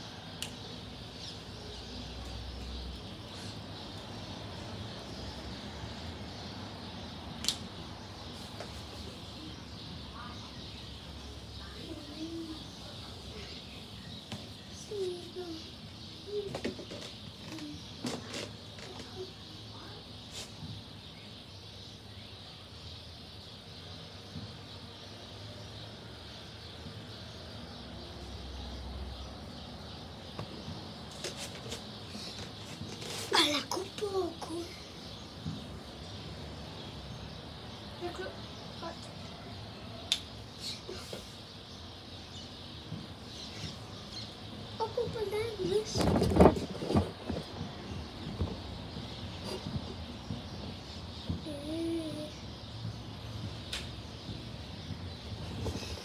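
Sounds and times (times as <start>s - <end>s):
outdoor background hiss: 0.0s - 56.0s
finger snap: 0.4s - 0.6s, 7.4s - 7.7s, 40.1s - 40.3s.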